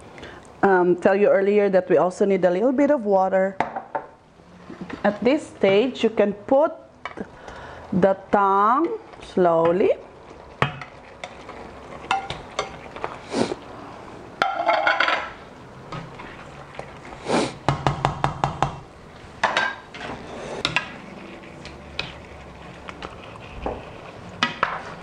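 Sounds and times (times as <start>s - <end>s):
cookware knocks and clinks: 14.4s - 15.3s.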